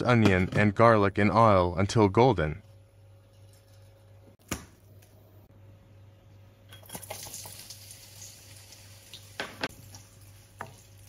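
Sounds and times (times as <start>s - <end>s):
onion sizzling in hot oil: 7.2s - 11.0s.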